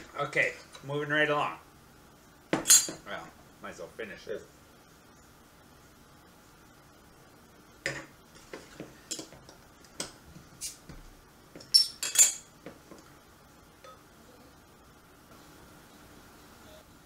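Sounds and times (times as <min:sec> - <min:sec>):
glass bottles clinking: 0:11.6 - 0:12.5.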